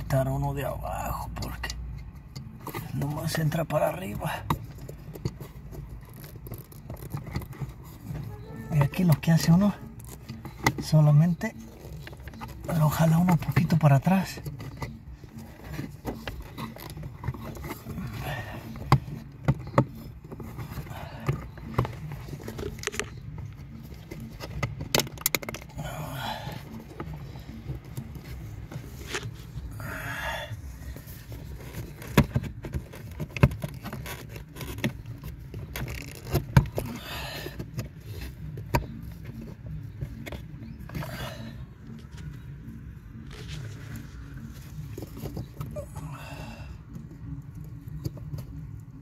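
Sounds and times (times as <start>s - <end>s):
low steady hum: 0.0s - 49.0s
rustling scrapes: 2.4s - 24.8s, 25.5s - 45.8s
small clicks knocks and scrapes: 4.4s - 11.0s, 14.3s - 25.7s.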